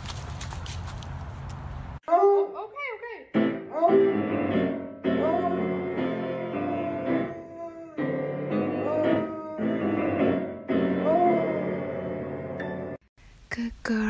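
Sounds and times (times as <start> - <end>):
piano chords: 3.3 - 13.1
dog howling: 5.1 - 10.3, 10.9 - 12.1.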